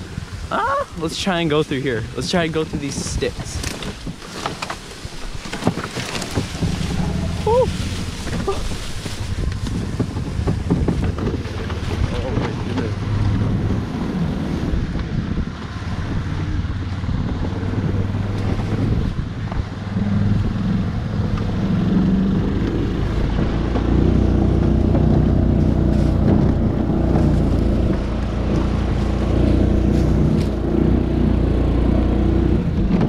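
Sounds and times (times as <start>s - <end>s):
cart wheels knocking over sticks: 2.9s - 13.0s
golf cart motor humming: 3.7s - 33.0s.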